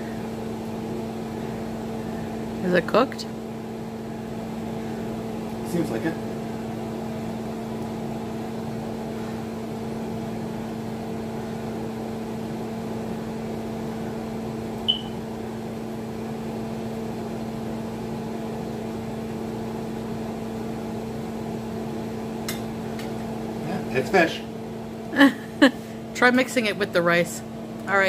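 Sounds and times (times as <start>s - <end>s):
appliance humming: 0.0s - 28.0s
high-pitched ping: 14.9s - 15.2s.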